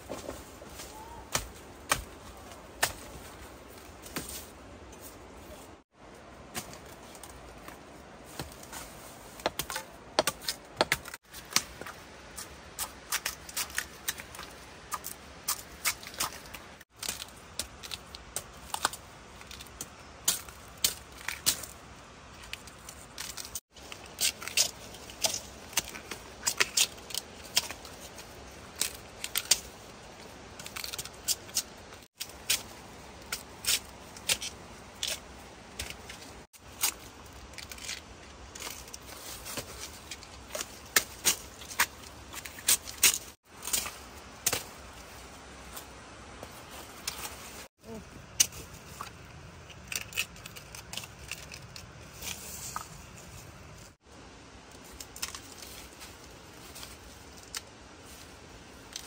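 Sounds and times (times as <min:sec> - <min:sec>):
dry leaves crackling and snapping: 0:12.8 - 0:54.0, 0:54.6 - 0:59.0.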